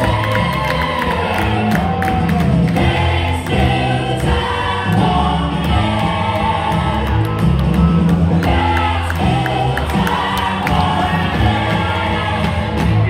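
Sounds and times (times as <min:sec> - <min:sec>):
music with singing over loudspeakers: 0:00.0 - 0:13.0.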